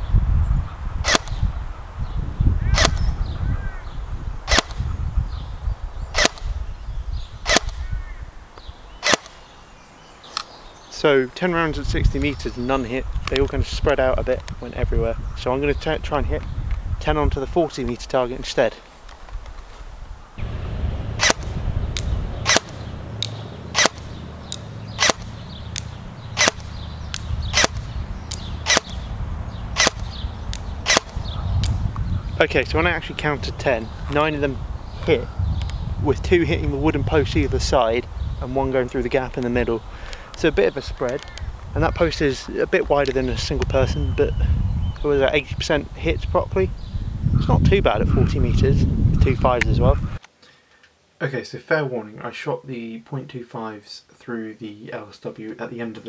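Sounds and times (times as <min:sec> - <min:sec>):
airsoft rifle shots: 0:01.0 - 0:01.4, 0:02.8 - 0:03.1, 0:04.5 - 0:04.8, 0:06.2 - 0:06.5, 0:07.5 - 0:07.9, 0:09.0 - 0:09.4, 0:21.2 - 0:22.8, 0:23.7 - 0:24.2, 0:24.9 - 0:29.1, 0:29.8 - 0:30.1, 0:30.8 - 0:31.2.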